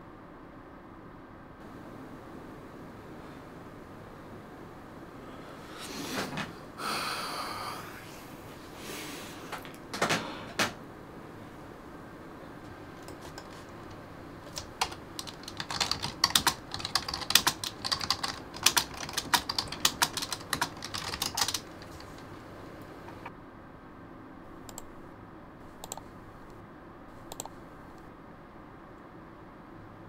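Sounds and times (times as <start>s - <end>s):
typing on computer keyboard: 13.0s - 23.3s, 25.8s - 26.0s, 27.3s - 27.6s.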